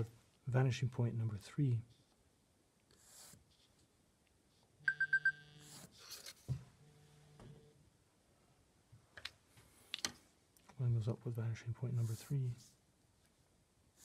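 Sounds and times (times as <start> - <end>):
low steady alarm tone: 4.8 - 5.7
phone alarm high beeps: 4.9 - 5.5.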